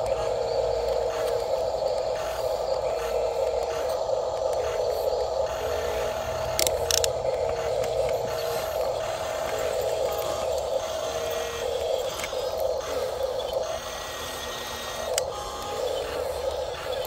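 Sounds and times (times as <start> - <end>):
electric gear motors whining: 0.0 - 17.0
click: 6.5 - 8.2, 15.1 - 15.7.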